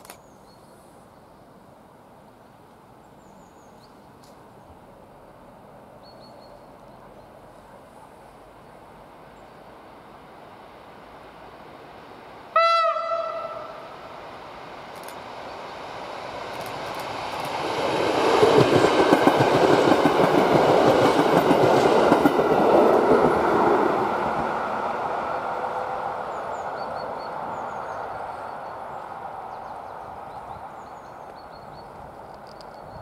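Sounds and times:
train wheels rumbling on rails: 13.2 - 33.0.

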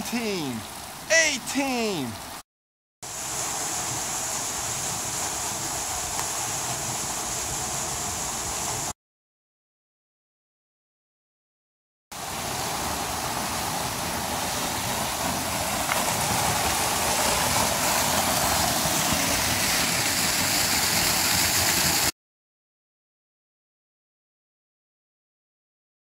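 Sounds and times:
waterfall splashing into pool: 0.0 - 2.4, 3.1 - 9.0, 12.2 - 22.1.

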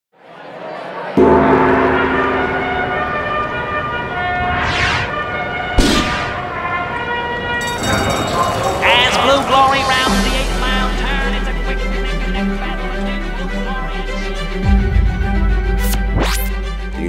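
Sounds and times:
ringing bell-like chord: 1.2 - 4.6, 7.5 - 12.2
deep boom: 1.2 - 6.7
sharp hit: 1.2 - 6.7
whooshes sweeping past: 4.4 - 5.2.

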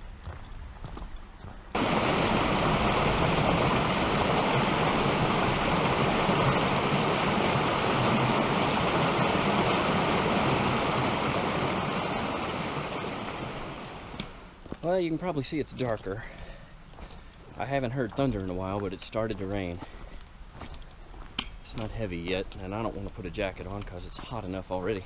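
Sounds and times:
creek water rushing over rocks: 1.8 - 14.5.

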